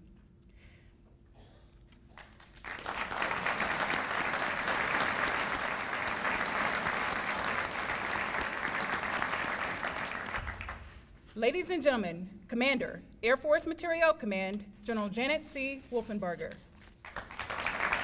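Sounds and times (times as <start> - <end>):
audience applauding: 2.2 - 11.0, 17.0 - 18.0.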